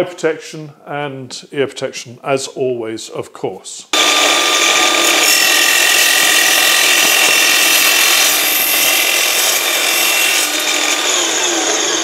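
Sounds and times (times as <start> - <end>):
mitre saw cutting metal: 4.0 - 12.0.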